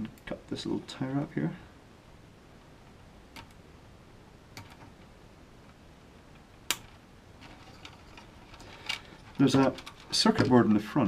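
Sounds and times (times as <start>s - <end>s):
faint clicks of wire handling: 4.5s - 10.6s.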